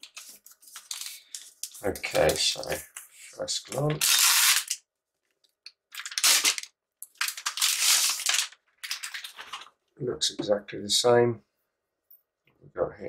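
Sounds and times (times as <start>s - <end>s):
plastic wrapping rustling: 0.0s - 2.8s, 5.9s - 9.8s.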